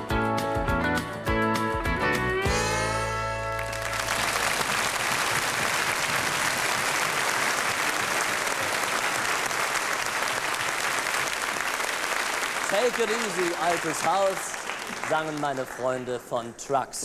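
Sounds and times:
audience applauding: 0:03.4 - 0:16.4.

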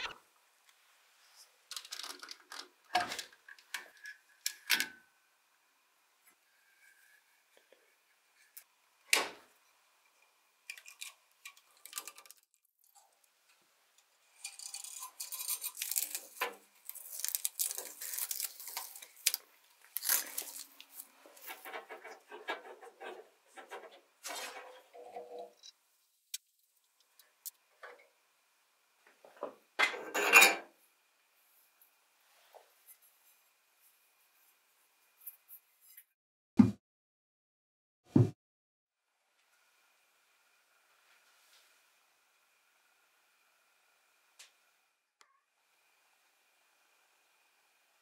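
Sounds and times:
grip wrapping tearing: 0:10.7 - 0:12.6, 0:14.4 - 0:21.5.

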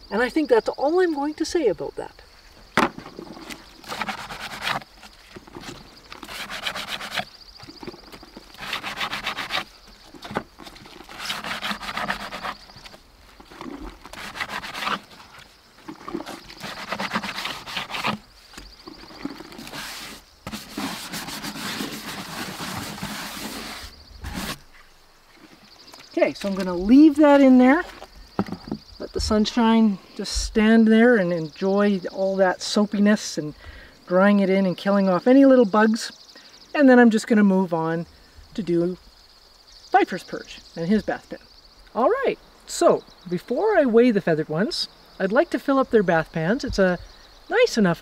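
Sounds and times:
scrub brush scrubbing plastic: 0:19.6 - 0:24.6.

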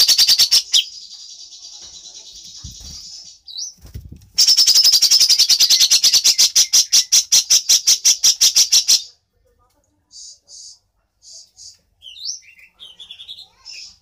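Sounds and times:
songbird singing: 0:10.1 - 0:14.0.

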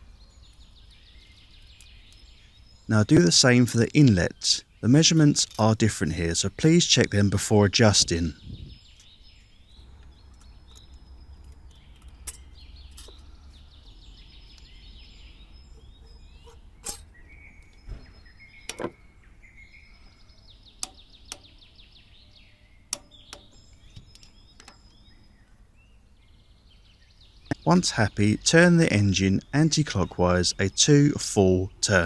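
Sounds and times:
small birds chirping: 0:00.0 - 0:32.0
sharp clicks and taps: 0:20.8 - 0:21.5.

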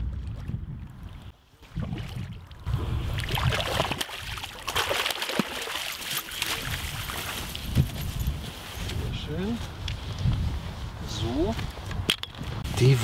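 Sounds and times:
wind rumble on microphone: 0:00.0 - 0:04.0, 0:06.5 - 0:13.0
fish thrashing and splashing: 0:01.8 - 0:07.6.

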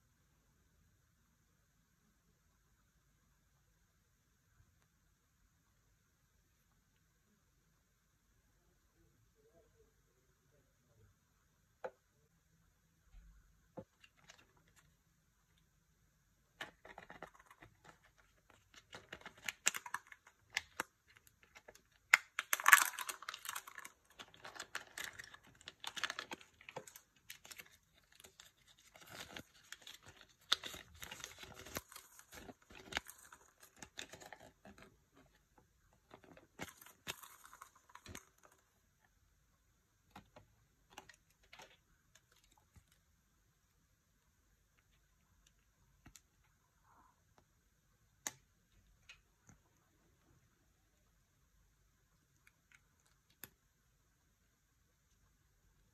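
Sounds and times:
paper leaflet crinkling: 0:16.6 - 0:35.3
foil wrapper rustling and tearing: 0:16.7 - 0:34.8.

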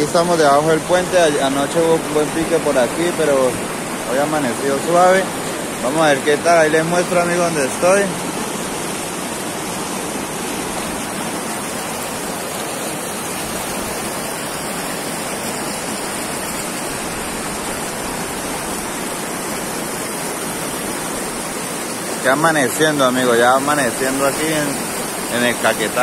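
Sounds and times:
river rapids rushing: 0:00.0 - 0:26.0.

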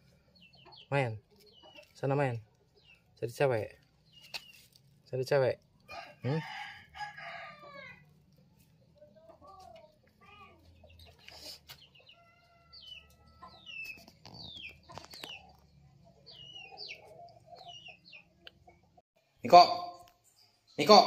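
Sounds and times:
chickens clucking: 0:00.0 - 0:04.8, 0:07.2 - 0:19.0
small birds chirping: 0:00.0 - 0:21.0.

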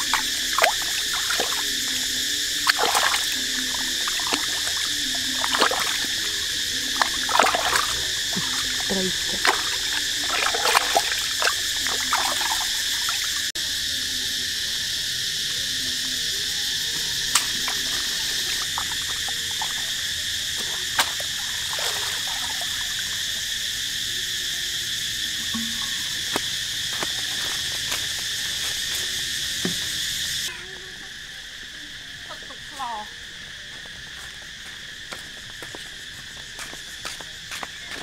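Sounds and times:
small water splashes: 0:00.0 - 0:02.0, 0:02.6 - 0:13.5, 0:17.4 - 0:23.2
chirring insects: 0:00.0 - 0:38.0.

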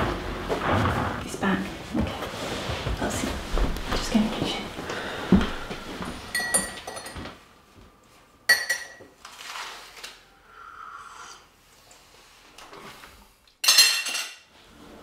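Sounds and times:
spoon clinking against mug: 0:06.3 - 0:07.2.

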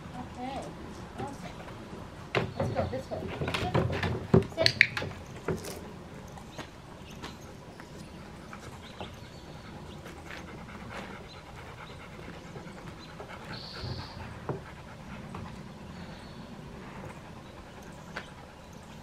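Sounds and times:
dog panting: 0:05.1 - 0:19.0.

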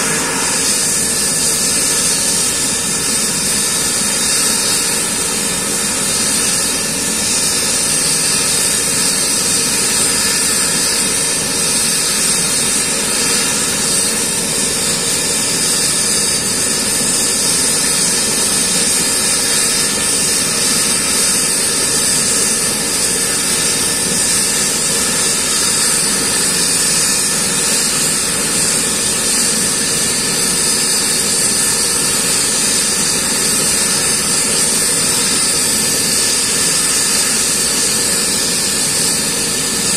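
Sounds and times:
helicopter rotor noise: 0:00.0 - 0:39.9
helicopter turbine whine: 0:00.0 - 0:39.9.

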